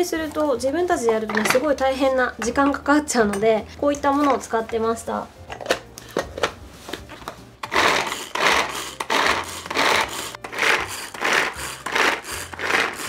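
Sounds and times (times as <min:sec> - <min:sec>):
vegetable chopper strokes: 0:07.6 - 0:13.0.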